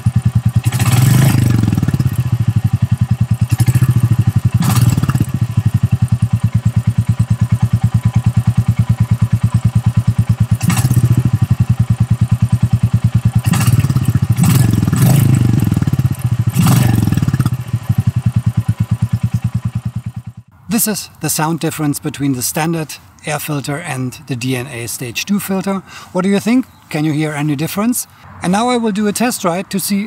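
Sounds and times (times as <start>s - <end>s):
motorcycle engine idling and revving: 0.0s - 20.6s.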